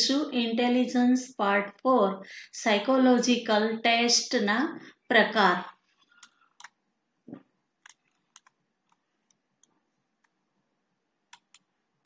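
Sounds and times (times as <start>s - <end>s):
computer mouse clicks: 6.1s - 6.8s, 7.8s - 10.4s, 11.3s - 11.7s.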